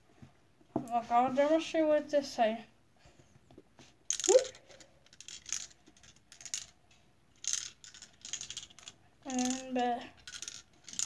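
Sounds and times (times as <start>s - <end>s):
puzzle cube pieces clicking: 4.1s - 6.7s, 7.4s - 11.0s
balls rattling inside cube: 4.1s - 11.0s.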